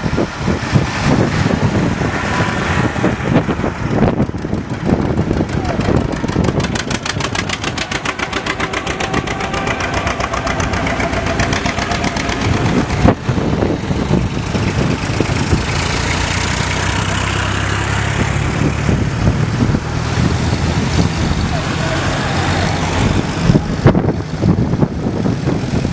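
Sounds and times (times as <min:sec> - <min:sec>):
tractor engines passing: 0:00.0 - 0:25.9.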